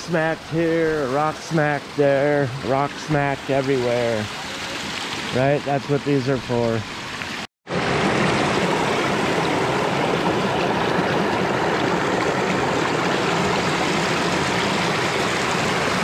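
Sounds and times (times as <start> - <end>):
creek rushing over rocks: 0.0 - 16.0.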